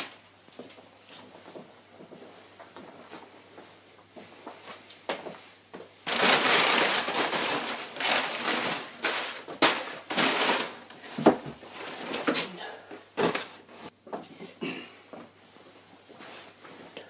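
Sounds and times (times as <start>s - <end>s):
packing paper crinkling: 6.0s - 12.5s.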